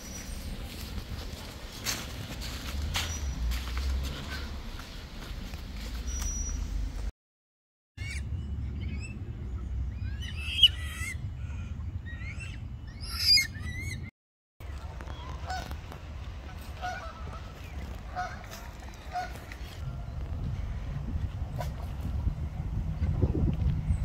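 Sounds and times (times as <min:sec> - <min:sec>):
gliding bird calls: 0:08.0 - 0:14.1
goose honking: 0:16.5 - 0:19.6.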